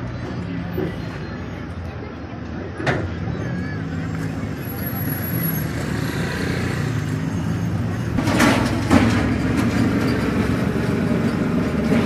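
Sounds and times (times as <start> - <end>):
loud rush of noise: 2.8 - 12.0.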